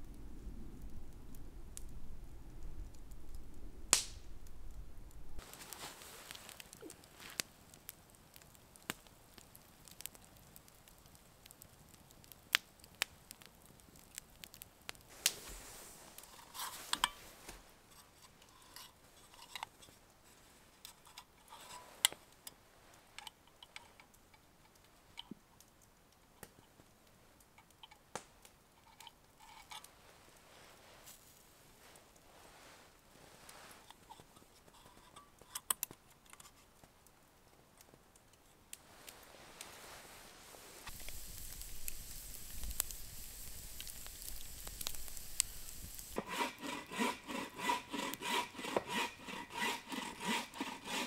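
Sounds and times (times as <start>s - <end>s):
sharp snaps: 2.8s - 4.8s
match striking flare: 2.9s - 7.6s, 12.2s - 18.1s, 38.7s - 51.0s
light rustles: 15.1s - 22.3s.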